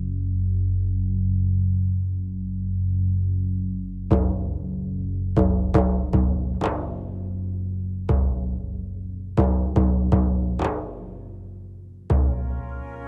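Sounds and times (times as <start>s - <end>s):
deep drum strikes in film music: 4.1s - 12.7s.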